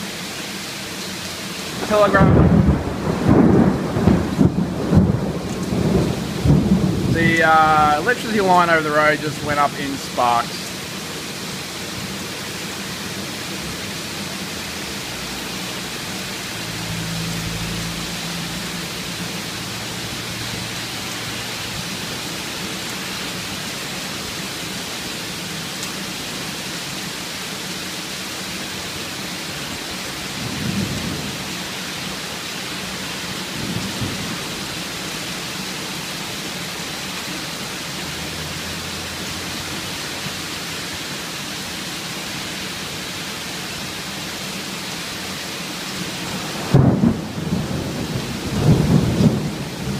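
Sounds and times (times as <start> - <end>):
heavy rain falling: 0.0 - 49.9
thunder rumbling: 1.8 - 10.6, 30.4 - 31.5, 46.2 - 49.9.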